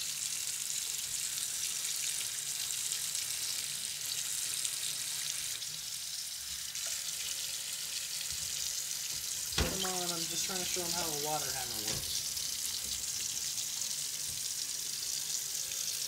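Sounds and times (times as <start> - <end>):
tap water running into sink: 0.2 - 16.0.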